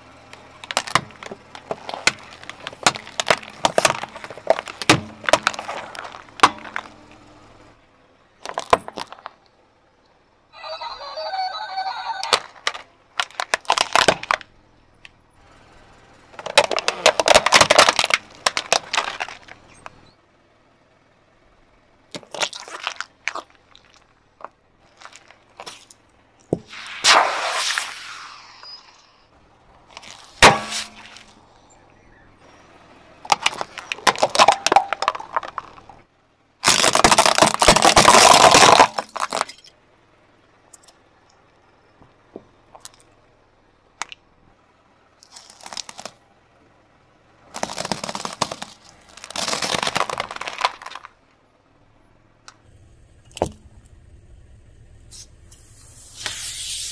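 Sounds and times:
tyre crunching plastic toys: 0.1 - 7.3, 8.4 - 9.5, 11.9 - 15.1, 16.3 - 20.1, 22.1 - 29.0, 29.7 - 31.6, 33.2 - 36.0, 36.6 - 39.8, 45.2 - 46.3, 47.4 - 51.2
sharp crack: 0.2 - 7.2, 12.2 - 15.2, 16.3 - 20.0, 22.1 - 29.2, 29.9 - 31.7, 36.6 - 39.7, 47.5 - 51.2
spray can hissing: 55.1 - 56.9.

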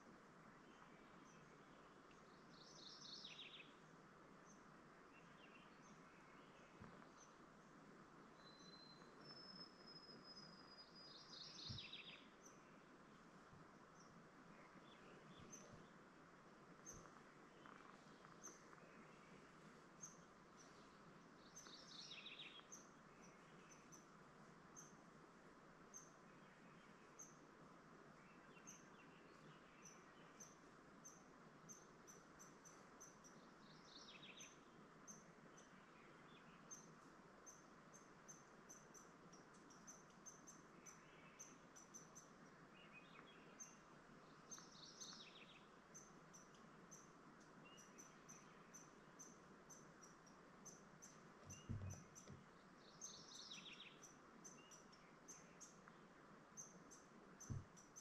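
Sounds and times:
bird song phrase: 0.6 - 3.8, 4.4 - 7.4, 8.4 - 12.9, 13.9 - 16.0, 20.0 - 24.1, 28.1 - 58.0
birds chirping: 13.9 - 16.0, 31.7 - 58.0
soft low thumps: 51.4 - 52.5, 57.5 - 57.8.

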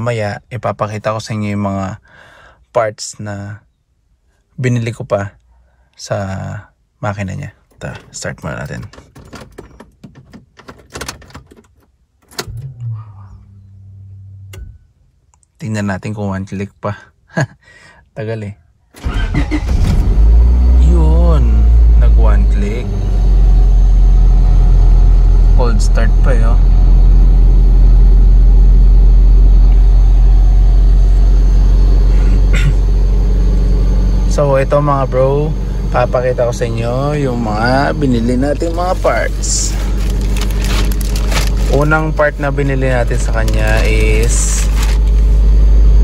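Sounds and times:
car electric hum: 7.7 - 15.2, 19.0 - 46.0.

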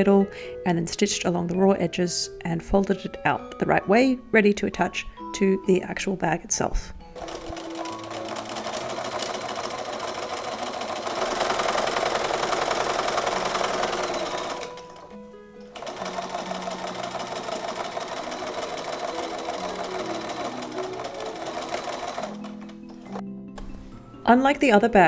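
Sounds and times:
sewing machine stitching: 7.2 - 15.1, 15.7 - 23.2.

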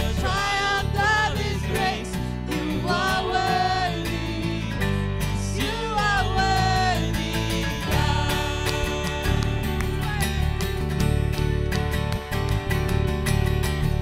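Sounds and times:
people singing: 0.0 - 10.4
acoustic and electric guitars: 0.0 - 14.0
keyboard: 0.0 - 14.0.

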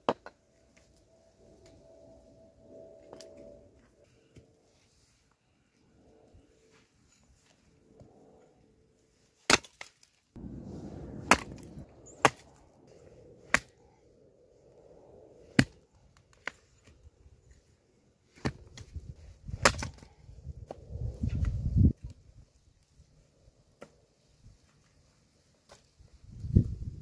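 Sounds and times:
axe chopping wood: 9.5 - 9.9, 11.2 - 12.4, 15.6 - 15.8, 19.5 - 20.1.

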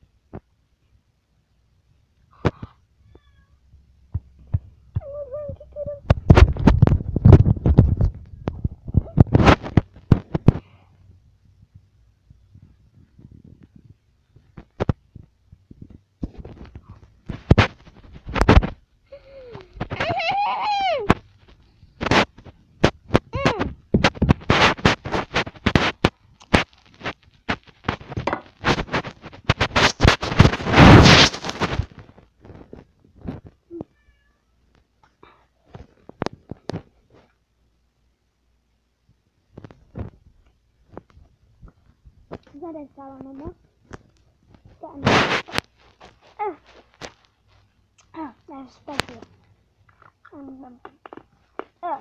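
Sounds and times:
handling noise on phone microphone: 2.2 - 34.1, 35.6 - 37.6, 39.0 - 52.0
high-pitched cry: 5.0 - 6.1, 19.2 - 21.2.

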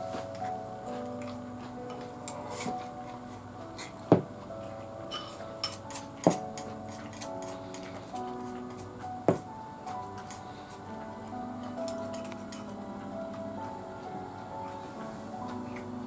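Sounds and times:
soft background music: 0.0 - 16.0.

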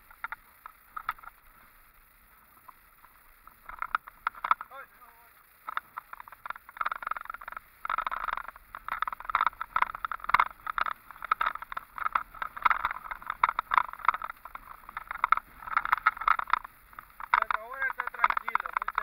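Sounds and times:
crackling rattle: 0.0 - 19.0.

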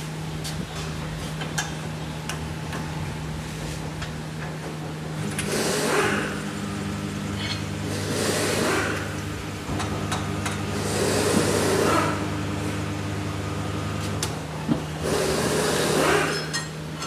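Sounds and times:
machine motor hum: 5.1 - 16.3.

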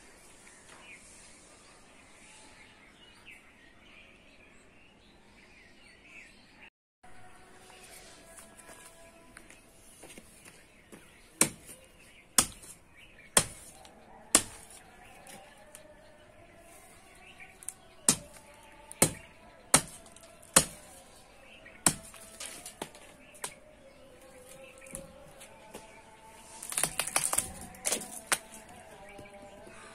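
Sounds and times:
knife chopping plant stems: 11.4 - 15.8, 17.6 - 21.1, 21.8 - 23.6, 26.5 - 29.3.

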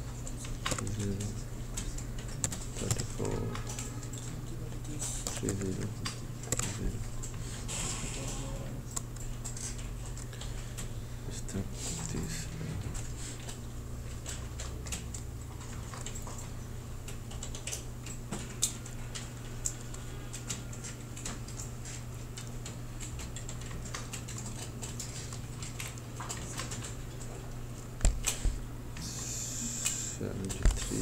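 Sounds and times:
steady low hum: 0.0 - 31.0
keyboard and mouse clicking: 0.2 - 4.4, 5.2 - 7.4, 13.4 - 27.3.

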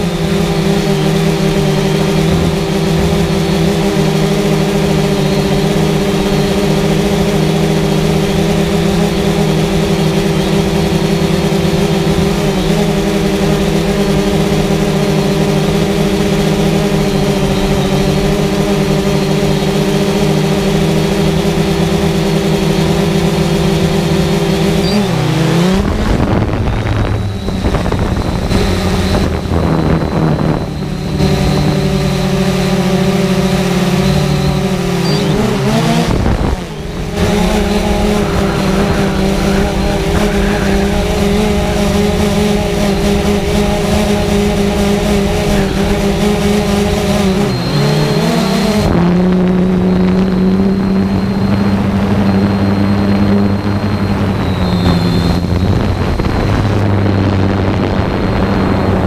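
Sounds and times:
drone propellers buzzing: 0.0 - 59.0.

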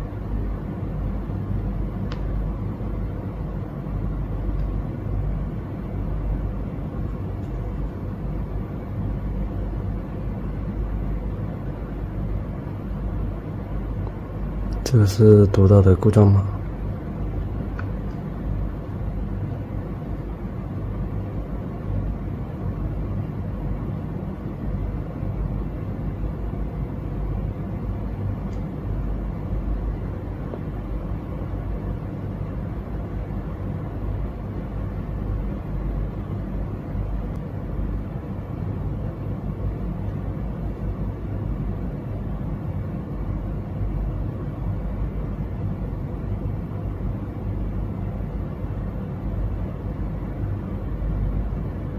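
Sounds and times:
low hum and rumble: 0.0 - 51.9.

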